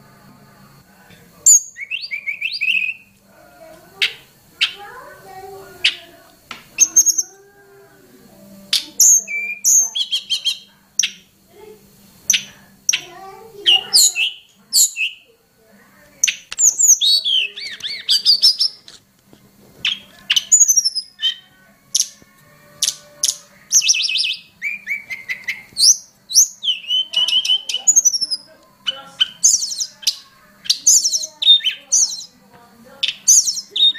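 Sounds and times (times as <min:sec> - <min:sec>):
bird chirping and trilling: 0:01.4 - 0:03.2, 0:04.0 - 0:06.2, 0:06.8 - 0:07.5, 0:08.6 - 0:11.3, 0:12.2 - 0:15.3, 0:16.2 - 0:18.8, 0:19.8 - 0:33.9.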